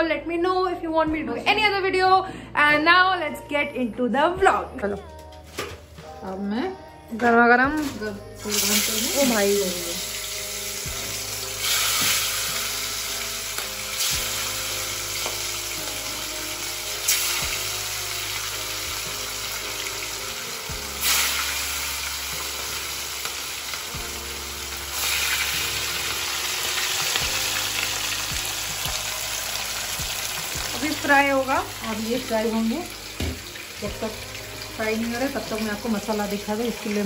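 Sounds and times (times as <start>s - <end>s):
fish sizzling in hot oil: 7.8s - 37.0s.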